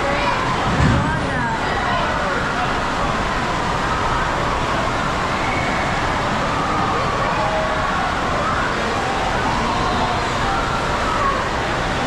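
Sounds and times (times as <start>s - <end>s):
rushing water: 0.0s - 12.0s
echoing indoor din: 0.3s - 2.4s.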